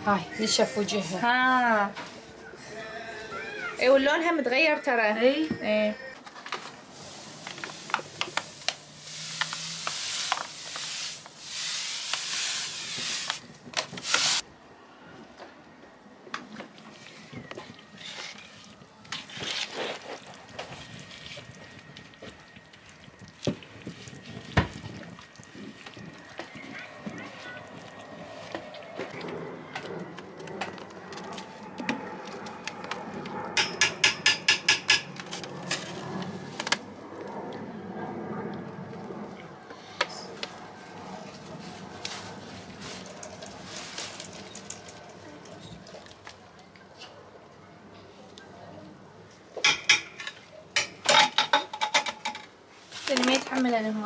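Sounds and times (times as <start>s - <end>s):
paper bag crackling: 6.2s - 14.4s, 41.4s - 45.1s, 52.9s - 53.8s
sugar pouring into a pot: 7.0s - 13.4s.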